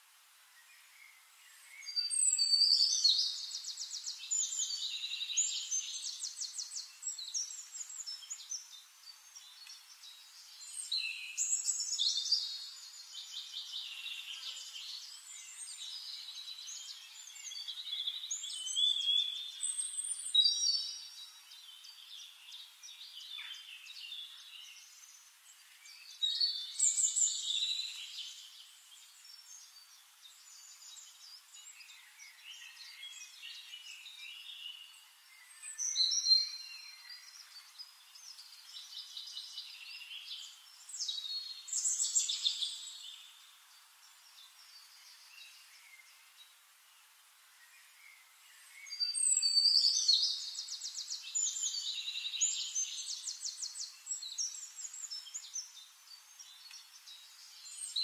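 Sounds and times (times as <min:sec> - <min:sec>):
songbirds singing: 0:00.0 - 0:58.0.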